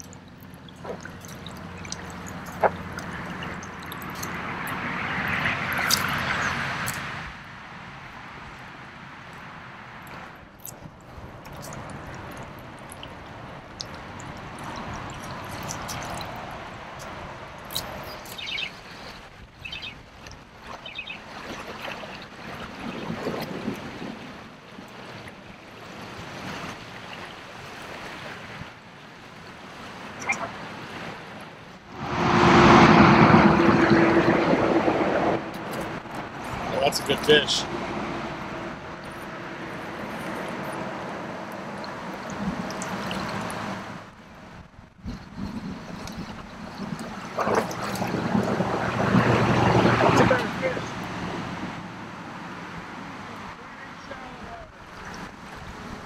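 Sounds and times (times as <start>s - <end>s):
water splashing and trickling: 0.0s - 56.0s
wind on microphone: 31.8s - 51.8s.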